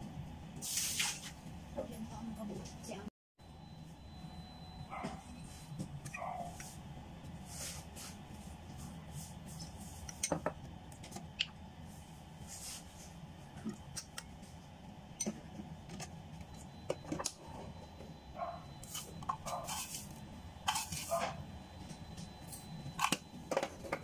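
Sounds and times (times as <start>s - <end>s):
low steady hum: 1.5s - 24.0s.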